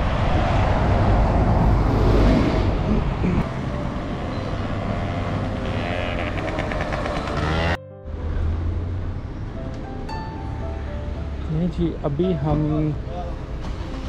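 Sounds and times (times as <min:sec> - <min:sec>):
wind rumbling on microphone: 0:00.0 - 0:04.2
road traffic passing: 0:00.0 - 0:14.0.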